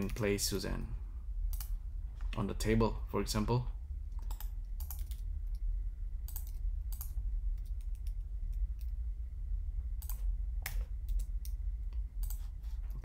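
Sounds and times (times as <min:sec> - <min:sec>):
steady low hum: 0:00.0 - 0:13.0
keyboard and mouse clicking: 0:01.5 - 0:01.7, 0:04.2 - 0:05.6, 0:06.3 - 0:09.0, 0:10.0 - 0:11.6.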